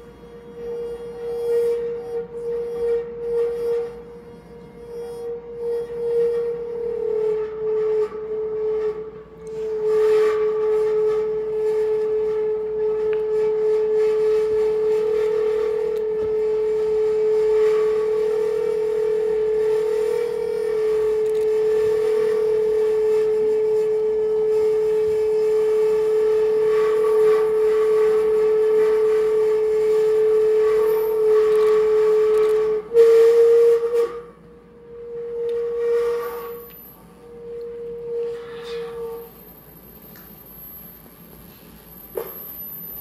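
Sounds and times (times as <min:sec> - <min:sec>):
whistle-like electronic tone: 0:00.0 - 0:43.0
hiss: 0:07.0 - 0:34.4, 0:35.0 - 0:43.0
sustained electronic drone: 0:14.4 - 0:29.8.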